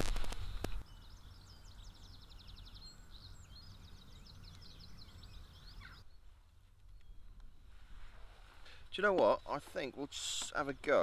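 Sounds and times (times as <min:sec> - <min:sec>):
songbird trilling: 0:00.8 - 0:06.2.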